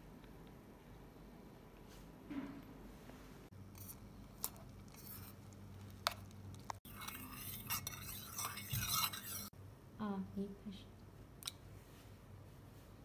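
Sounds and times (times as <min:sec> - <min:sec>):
stick scraping metal pot: 0:03.8 - 0:09.5.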